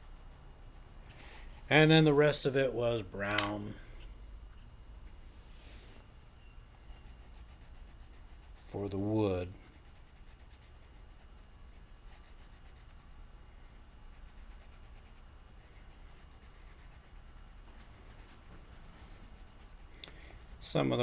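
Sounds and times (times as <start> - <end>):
crayon scribbling on paper: 6.9 - 13.2, 14.0 - 21.0.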